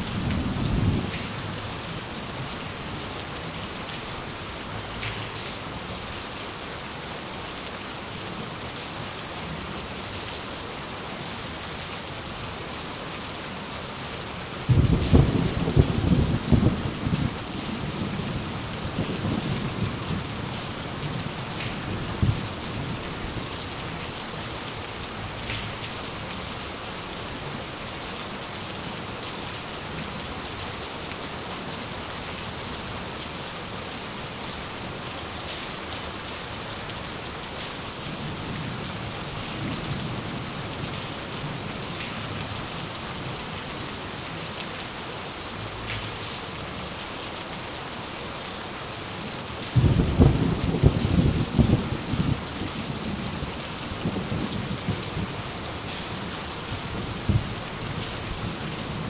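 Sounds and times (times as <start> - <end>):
steady rain hissing: 0.0 - 59.0
rolling thunder: 14.7 - 20.3, 49.8 - 52.8.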